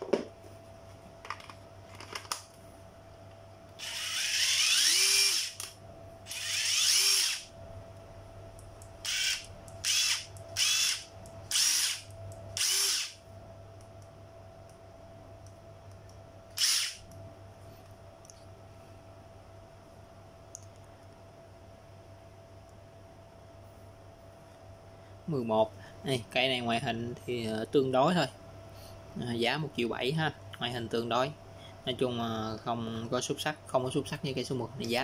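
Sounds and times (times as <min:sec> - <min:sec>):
cordless drill motor whine: 0:03.8 - 0:07.5, 0:09.0 - 0:13.2, 0:16.6 - 0:17.0.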